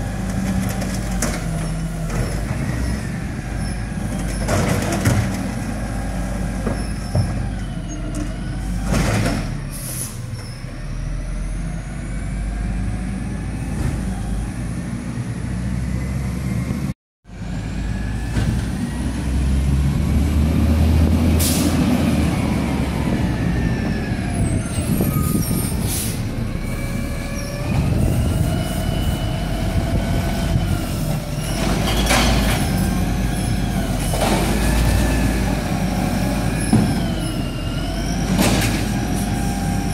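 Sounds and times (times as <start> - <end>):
truck engine revving: 17.4 - 39.9.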